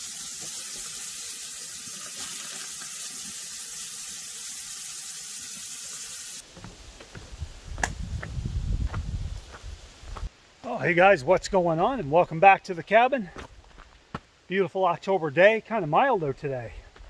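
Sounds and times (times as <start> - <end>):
steaks sizzling on a grill: 0.0 - 6.4.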